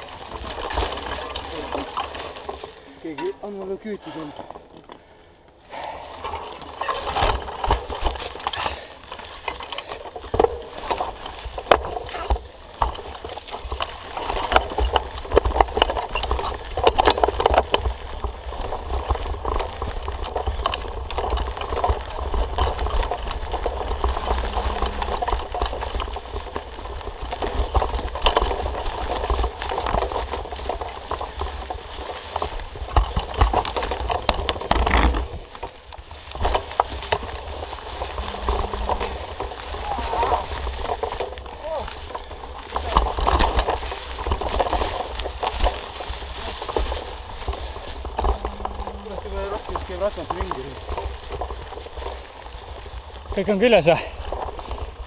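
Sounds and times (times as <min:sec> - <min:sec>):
bike knocks and rattles: 0:00.0 - 0:05.1, 0:05.8 - 0:55.0
tyres crunching leaves and twigs: 0:00.0 - 0:55.0.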